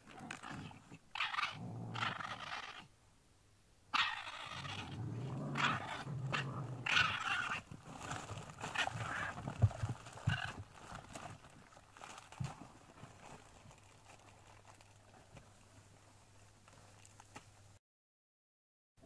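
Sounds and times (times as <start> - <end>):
animal grunting and chattering: 0.0 - 2.9, 3.9 - 10.8.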